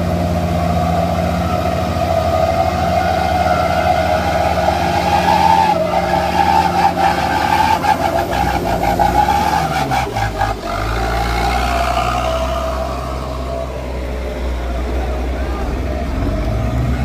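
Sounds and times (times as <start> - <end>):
diesel engines under load: 0.0 - 17.0.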